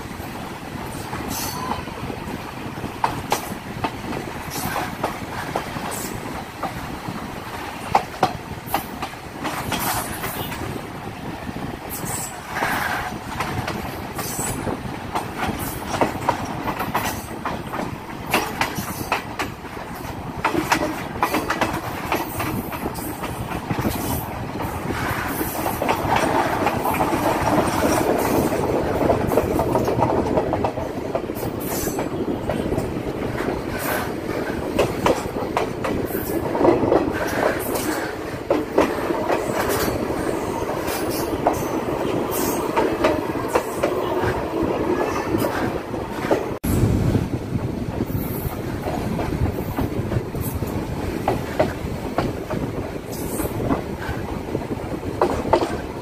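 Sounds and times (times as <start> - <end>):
wheels clacking over rail joints: 0.0 - 11.2, 11.8 - 46.7, 47.6 - 56.0
train wheels rumbling on track: 0.0 - 56.0.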